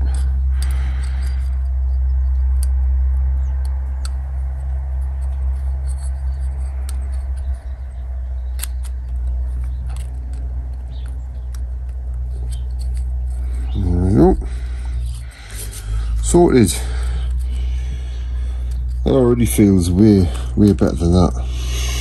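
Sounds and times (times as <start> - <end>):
low rumble: 0.0 - 22.0
faint clicks and ticks: 2.4 - 13.7.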